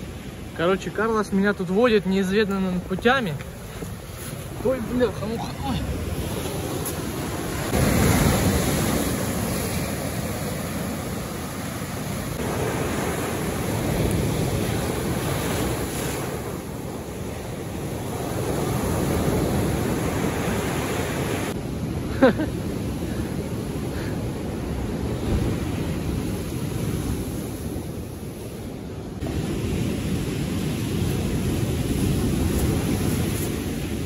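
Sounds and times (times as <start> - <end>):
surf breaking on beach: 2.7 - 28.2.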